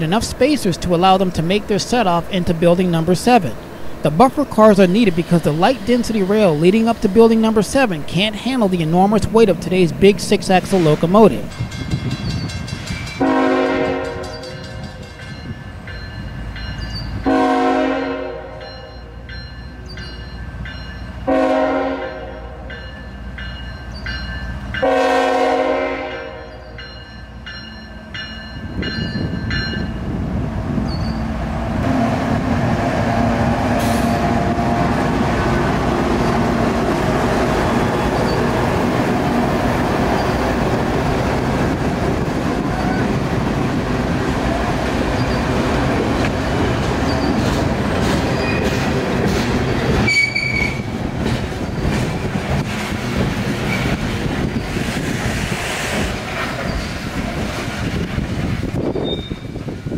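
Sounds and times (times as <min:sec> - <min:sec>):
crossing bell ringing: 0:00.0 - 0:30.1
diesel locomotive rumble: 0:00.0 - 0:59.9
train horn: 0:13.2 - 0:14.4, 0:17.2 - 0:18.8, 0:21.3 - 0:22.7, 0:24.8 - 0:26.6, 0:31.8 - 0:35.0
freight cars rolling over rails: 0:30.6 - 0:59.9
wheel squeal: 0:30.9 - 0:31.2, 0:45.2 - 0:45.5, 0:46.2 - 0:47.6, 0:50.0 - 0:50.9, 0:58.9 - 0:59.6.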